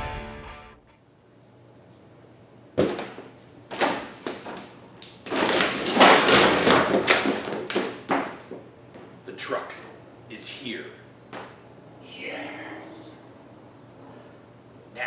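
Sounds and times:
panel flopping onto floor: 5.3s - 8.4s.

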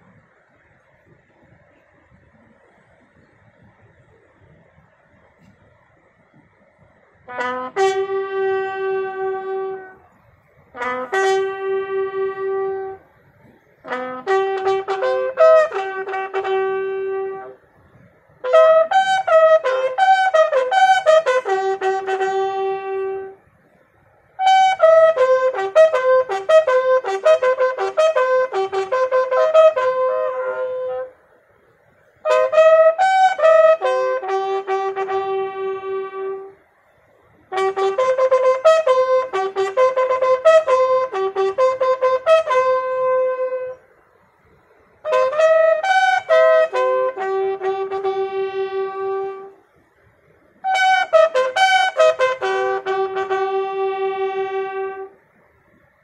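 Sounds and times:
bugle call: 7.0s - 17.7s, 18.4s - 23.5s, 24.3s - 31.4s, 32.0s - 44.2s, 45.0s - 49.8s, 50.6s - 55.2s.

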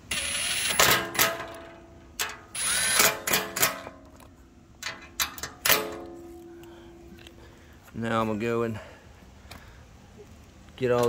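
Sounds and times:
impact driver running: 0.0s - 1.2s, 2.6s - 3.4s.

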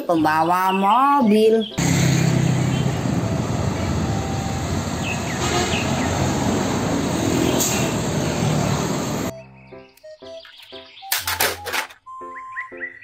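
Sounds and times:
diesel truck engine rumbling: 1.7s - 9.3s
tyre and traffic noise: 1.8s - 9.3s.

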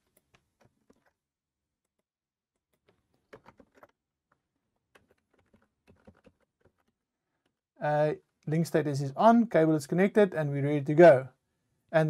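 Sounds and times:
faint keyboard typing: 2.6s - 7.6s.

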